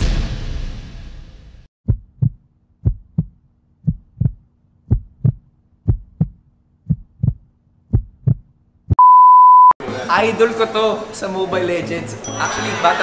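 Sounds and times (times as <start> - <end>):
heartbeat thumps: 1.8 - 9.0.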